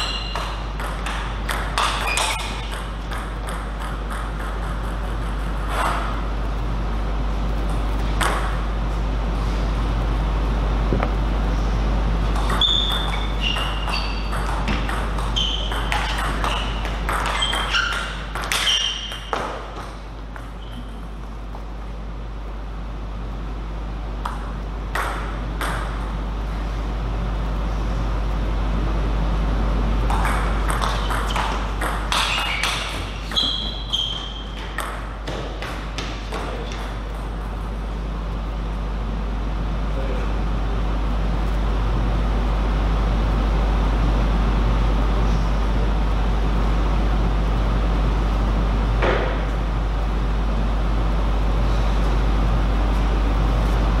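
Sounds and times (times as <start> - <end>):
shoe squeak: 0.0 - 0.7, 1.8 - 2.8, 12.5 - 19.5, 20.5 - 21.1, 30.8 - 35.5
table tennis ball hits: 0.0 - 6.2, 7.7 - 8.6, 12.3 - 21.0, 24.2 - 26.0, 30.1 - 37.3
steady low hum: 0.0 - 54.0.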